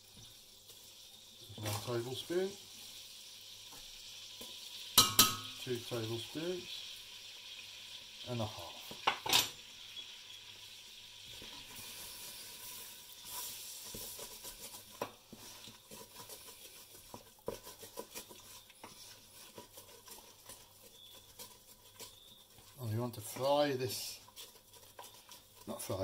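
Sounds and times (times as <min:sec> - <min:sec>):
roux sizzling in a saucepan: 0:00.0 - 0:26.0
spoon tapping and scraping a pan: 0:03.7 - 0:06.0, 0:08.8 - 0:09.6, 0:12.7 - 0:26.0.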